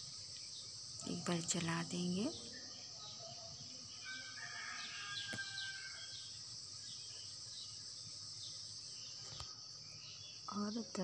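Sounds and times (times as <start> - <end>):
steady high hiss: 0.0 - 2.4
faint chirps: 0.0 - 11.0.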